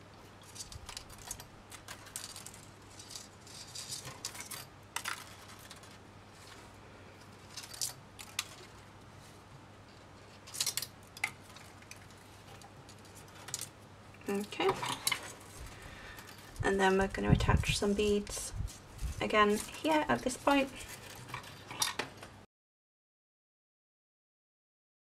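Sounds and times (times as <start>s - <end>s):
wire scratching and ticking: 0.4s - 22.3s.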